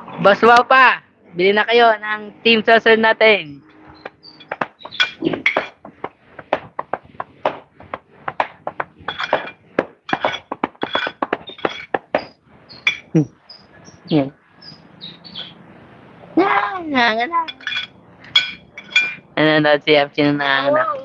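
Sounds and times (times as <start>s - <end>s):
high bird chirps: 3.7s - 5.3s, 11.4s - 15.6s.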